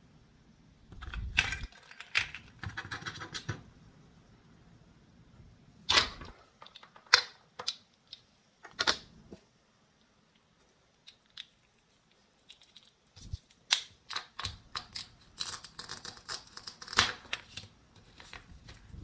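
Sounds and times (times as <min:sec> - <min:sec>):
plastic toy pieces clicking and tapping: 0:06.6 - 0:09.0.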